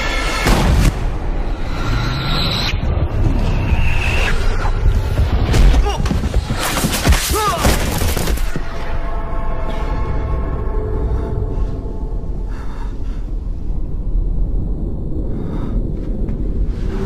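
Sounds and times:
low rumble: 0.0s - 6.6s, 8.6s - 17.0s
dramatic music: 0.0s - 6.8s
fight hits and crashes: 5.4s - 8.6s.

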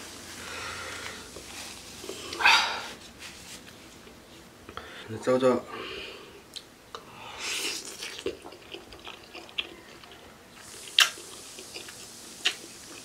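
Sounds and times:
slurping and chewing noodles: 7.4s - 13.0s.

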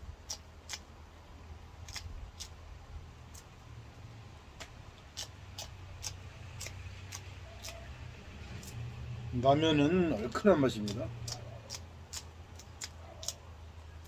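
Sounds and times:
low steady rumble: 0.0s - 14.0s
knife clicks cutting peppers: 4.6s - 7.9s, 10.8s - 13.4s.

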